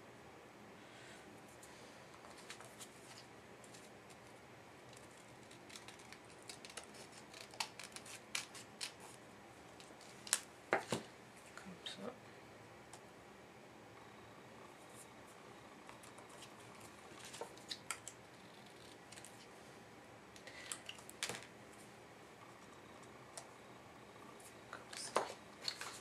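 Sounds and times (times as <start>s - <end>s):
scissors snipping paper: 4.9s - 9.2s.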